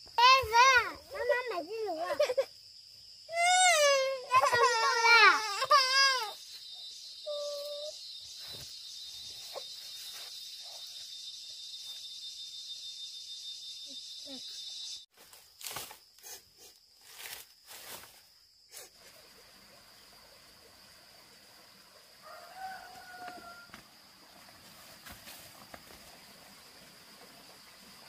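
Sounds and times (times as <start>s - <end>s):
insect chorus: 0.0s - 28.0s.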